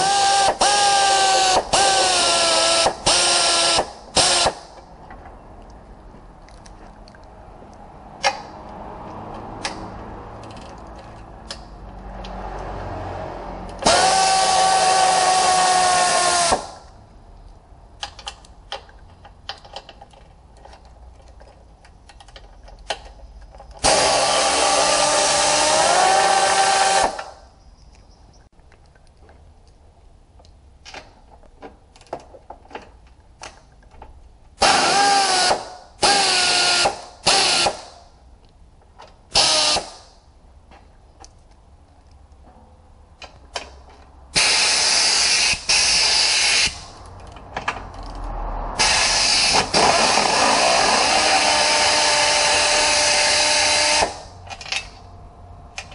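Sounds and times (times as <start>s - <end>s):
pneumatic air ratchet spinning: 0.0s - 4.8s, 13.8s - 16.9s, 23.8s - 27.4s, 34.6s - 38.0s, 39.3s - 40.1s, 44.4s - 47.1s, 48.8s - 55.0s
metallic clicks of fasteners: 6.4s - 12.6s, 16.9s - 23.8s, 43.2s - 44.1s, 46.6s - 48.3s, 54.0s - 55.1s.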